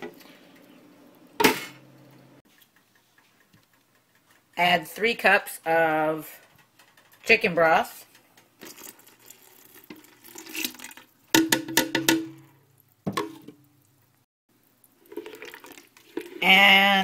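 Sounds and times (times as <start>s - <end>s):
broth poured into a pot: 8.6s - 11.3s, 14.6s - 16.5s.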